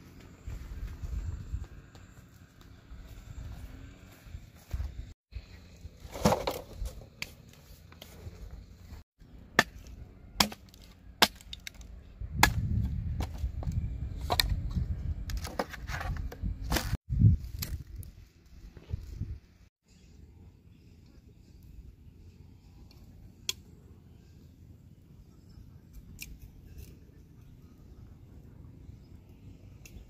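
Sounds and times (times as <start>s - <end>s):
machete chopping wooden sticks: 9.6s - 13.4s, 16.6s - 17.0s.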